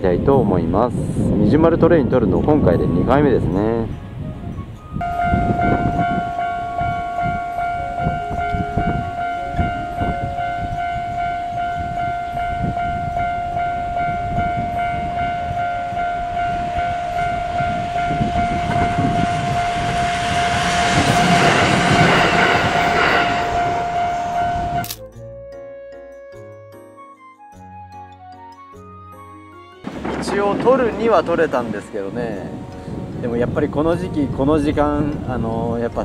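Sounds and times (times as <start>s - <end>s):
wind buffeting microphone: 0.0s - 24.9s, 29.8s - 36.0s
electric train running on rails: 0.0s - 25.0s, 29.8s - 36.0s
level crossing alarm ringing: 5.0s - 24.8s.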